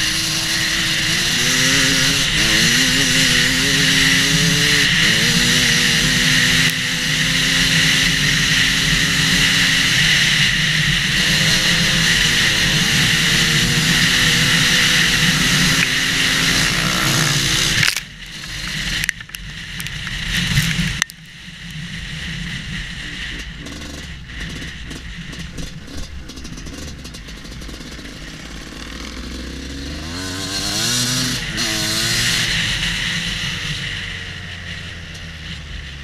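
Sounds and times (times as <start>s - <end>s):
motorcycle engine revving: 0.0s - 36.0s.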